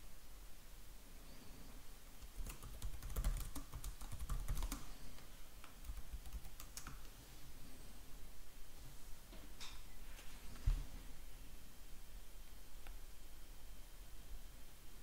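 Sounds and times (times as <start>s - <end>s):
computer keyboard typing: 2.2s - 7.1s.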